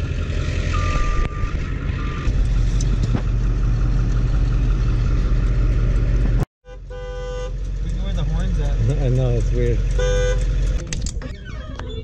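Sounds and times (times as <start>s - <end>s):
ambulance engine rumbling: 0.0s - 12.0s
high reversing beep: 0.7s - 2.3s.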